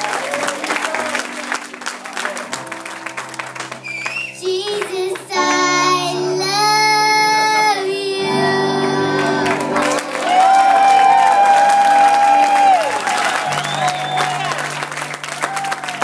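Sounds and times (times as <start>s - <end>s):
backing track music: 0.0s - 16.0s
girl singing into microphone: 4.4s - 9.8s.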